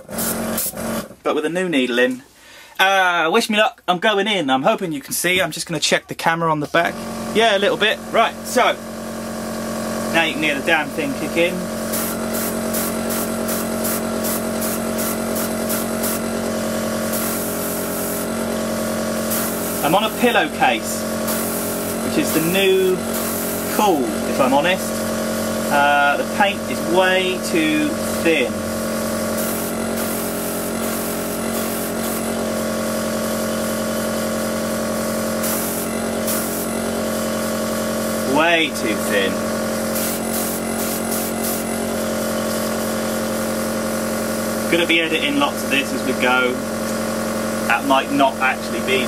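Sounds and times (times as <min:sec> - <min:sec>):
airbrush spraying hiss: 0:00.0 - 0:00.8, 0:11.8 - 0:23.8, 0:28.0 - 0:38.4, 0:39.7 - 0:43.8
compressor humming: 0:00.0 - 0:01.3, 0:06.6 - 0:49.0.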